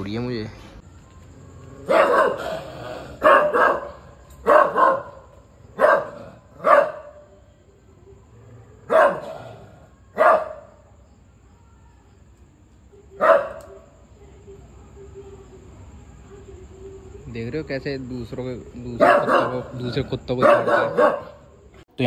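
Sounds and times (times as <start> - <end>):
dog barking: 1.8 - 7.3, 8.8 - 10.8, 13.2 - 13.9, 18.9 - 21.6.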